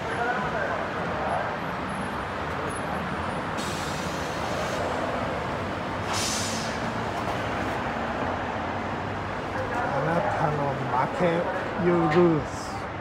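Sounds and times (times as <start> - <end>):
bus engine rumble: 0.0 - 13.0
air brake hiss: 3.6 - 4.8, 6.0 - 6.8.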